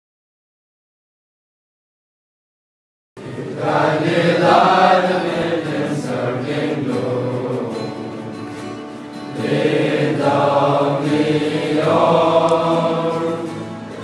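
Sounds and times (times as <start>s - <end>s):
boys chanting a prayer: 3.2s - 8.2s, 9.4s - 13.5s.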